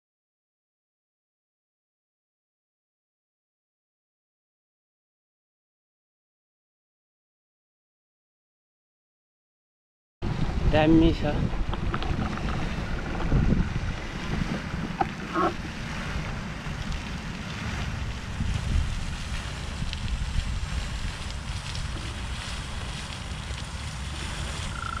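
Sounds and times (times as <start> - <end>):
wind rumbling on microphone: 10.2 - 25.0
fountain water jet hissing: 10.8 - 25.0.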